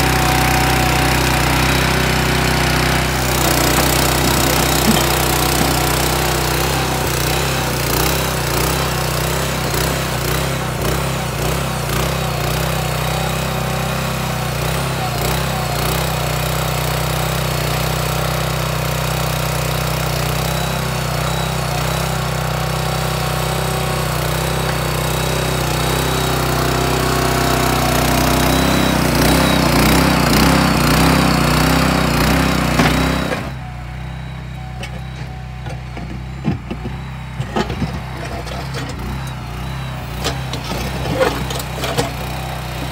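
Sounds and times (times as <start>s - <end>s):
small engine running: 0.0s - 42.9s.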